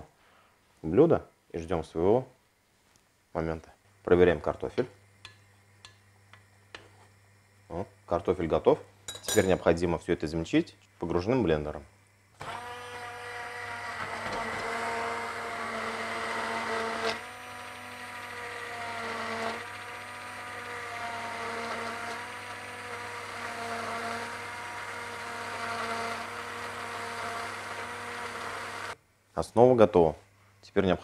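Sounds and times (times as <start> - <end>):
immersion blender motor hum: 12.4 - 29.0.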